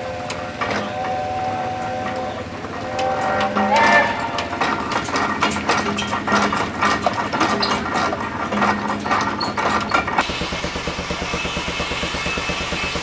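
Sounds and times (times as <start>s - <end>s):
mechanical clicking and knocking: 0.0s - 1.2s, 1.8s - 13.0s
low hum: 0.0s - 6.8s
steam engine running: 0.0s - 13.0s.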